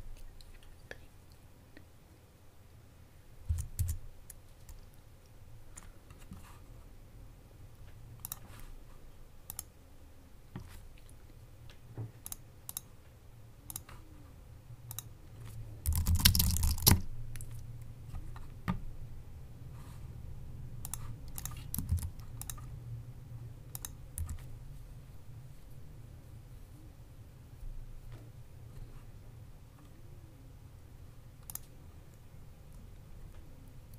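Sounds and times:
computer keyboard typing: 3.5s - 4.9s, 8.2s - 8.5s, 15.8s - 17.6s, 20.8s - 22.7s, 23.7s - 24.4s
mouse clicks: 9.5s - 9.7s, 13.7s - 14.0s, 20.8s - 22.7s, 23.7s - 24.4s, 31.4s - 31.7s.

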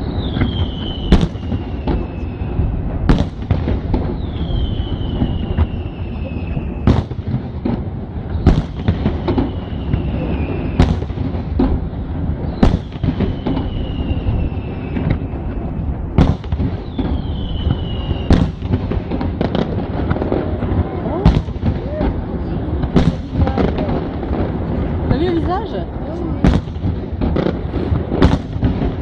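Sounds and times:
high falling whistle: 0.0s - 2.6s, 4.2s - 6.9s, 12.5s - 15.9s, 16.8s - 18.4s.

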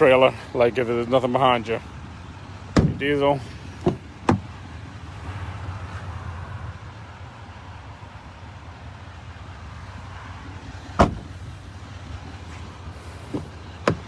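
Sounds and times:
truck door slamming: 2.7s - 3.2s, 3.8s - 4.6s, 10.9s - 11.5s, 13.2s - 14.0s.

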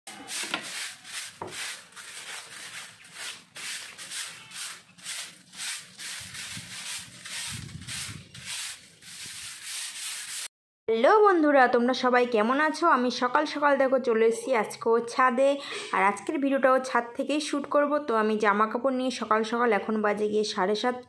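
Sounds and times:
broom sweeping concrete floor: 0.1s - 10.5s.

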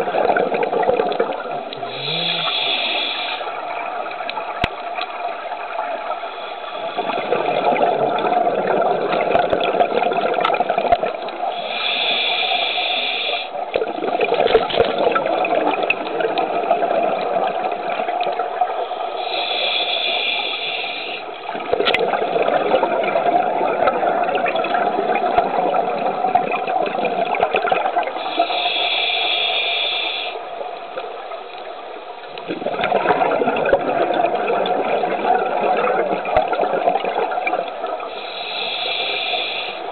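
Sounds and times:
exhaled bubbles gurgling: 0.0s - 39.9s
diver inhaling through regulator: 1.8s - 3.6s, 11.5s - 13.6s, 19.1s - 21.3s, 28.2s - 30.4s, 38.1s - 39.9s.

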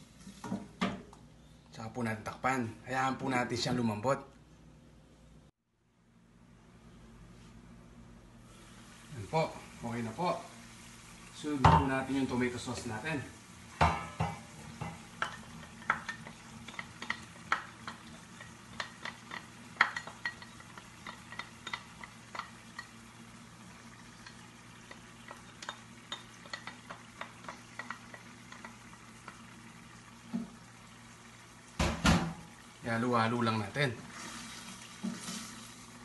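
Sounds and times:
wooden spatula scraping and tapping: 14.2s - 23.0s, 24.0s - 29.5s.

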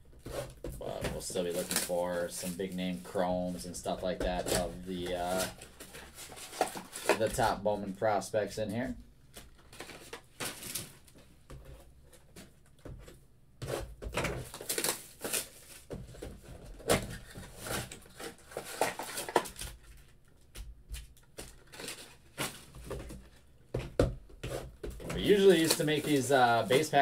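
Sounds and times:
foil packs crinkling: 0.8s - 7.6s, 9.4s - 11.2s, 14.4s - 15.9s, 17.0s - 20.2s, 21.4s - 22.8s, 25.2s - 27.0s.

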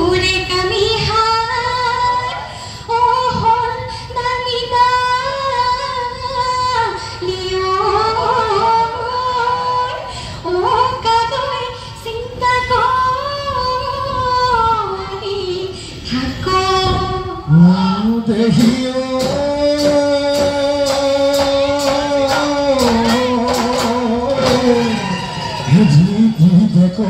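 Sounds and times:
singer breathing: 2.5s - 2.9s, 10.1s - 10.5s.

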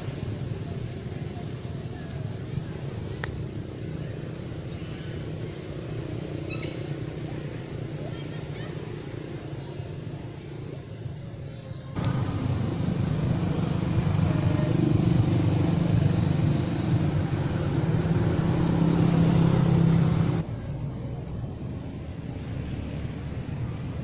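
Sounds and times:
motorbike engine running: 12.0s - 20.4s.

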